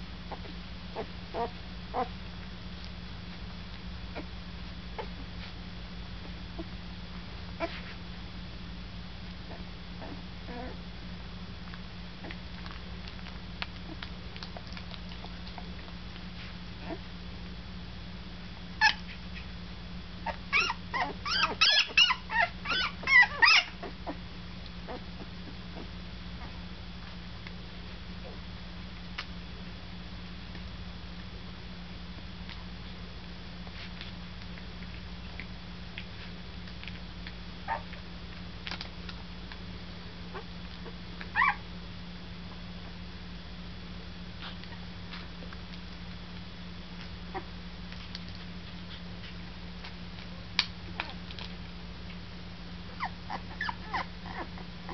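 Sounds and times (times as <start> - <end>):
steady low hum: 0.0 - 54.9
puppy squeaking and whimpering: 1.0 - 2.1, 10.0 - 10.8, 18.8 - 19.1, 20.2 - 24.2, 37.7 - 38.0, 41.3 - 41.6, 52.9 - 54.9.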